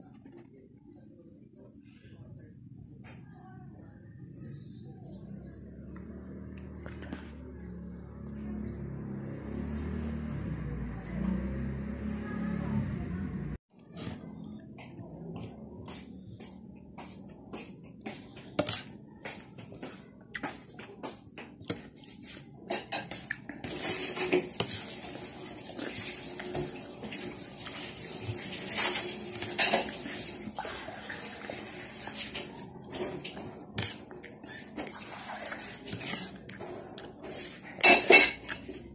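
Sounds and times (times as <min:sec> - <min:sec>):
cutlery clinking on a plate: 0:22.7 - 0:23.4, 0:37.8 - 0:38.7.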